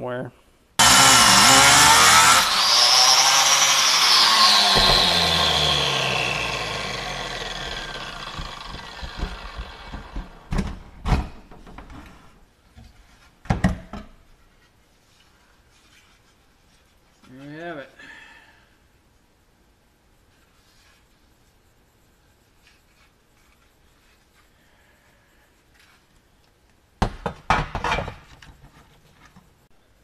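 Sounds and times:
angle grinder cutting metal: 0:00.8 - 0:10.5
grinder winding down: 0:00.8 - 0:10.5.

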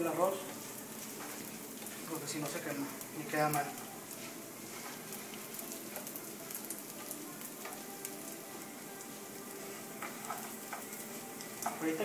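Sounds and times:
rice sizzling in hot oil: 0:00.0 - 0:12.0.

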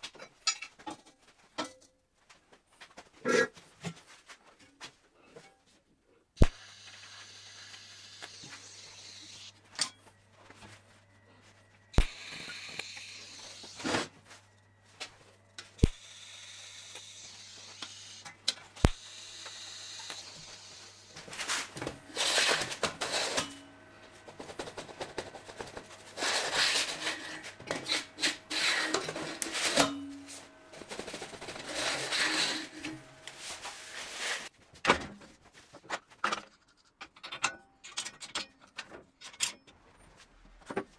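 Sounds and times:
welding arc humming and hissing: 0:06.4 - 0:34.5
loud uneven metalwork noise: 0:06.8 - 0:34.5.

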